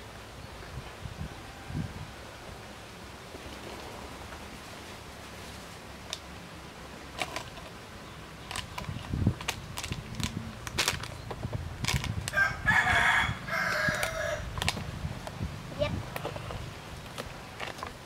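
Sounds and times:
rooster crowing: 0:12.3 - 0:14.5.

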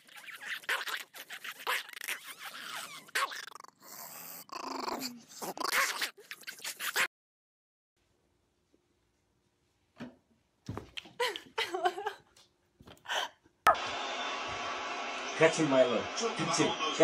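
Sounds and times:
small dog growling: 0:01.7 - 0:07.1.

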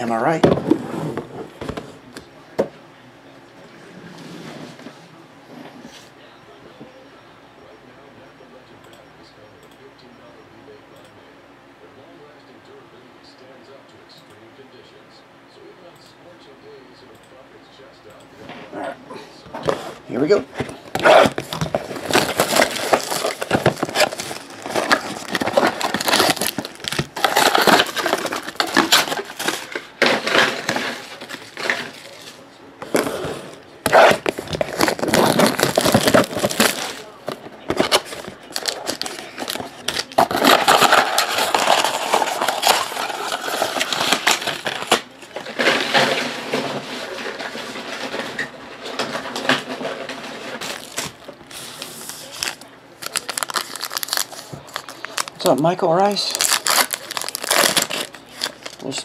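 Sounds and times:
plastic shrink-wrap crinkling: 0:20.2 - 0:32.4, 0:33.9 - 0:48.4, 0:50.0 - 0:59.0.

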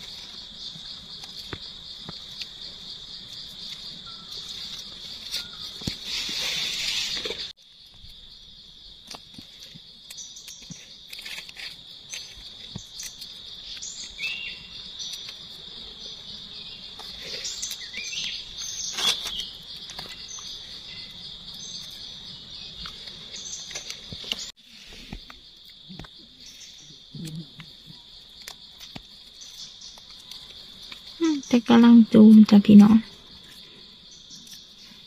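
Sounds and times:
insects droning: 0:00.0 - 0:35.0.

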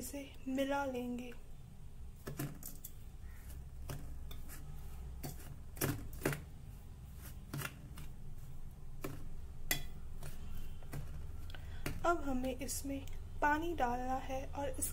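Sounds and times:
spoon scraping steel bowl: 0:04.2 - 0:06.3.

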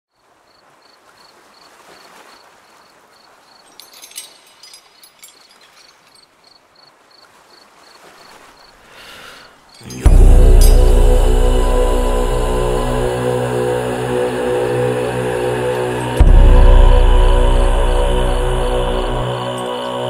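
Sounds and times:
high insect-like chirp: 0:00.5 - 0:08.8
crackling and rustling: 0:03.6 - 0:06.6
dark droning music with deep bass: 0:09.9 - 0:20.0.

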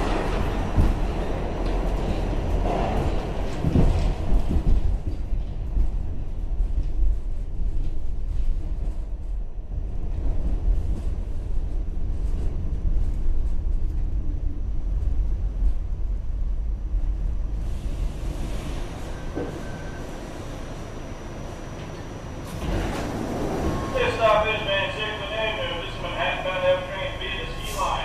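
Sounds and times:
subway train wheels rumbling: 0:00.0 - 0:28.0.

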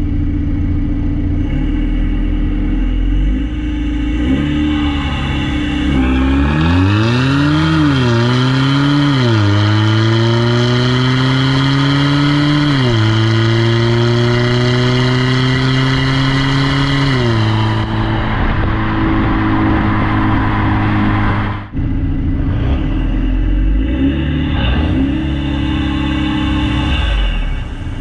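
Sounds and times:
car exhaust accelerating with gear shifts: 0:00.0 - 0:28.0.

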